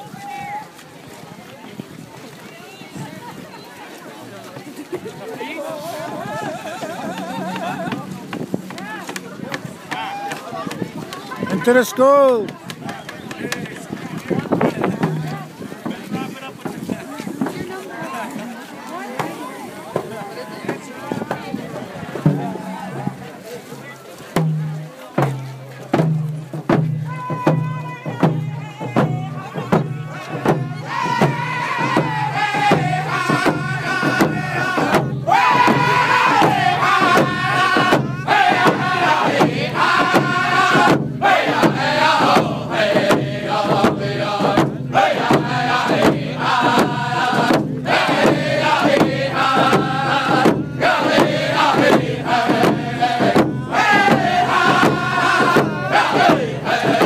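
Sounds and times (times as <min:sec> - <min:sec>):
group singing: 0:05.5 - 0:10.1, 0:28.8 - 0:57.0
frame drums beating: 0:06.0 - 0:17.7, 0:22.2 - 0:23.3, 0:24.3 - 0:57.0.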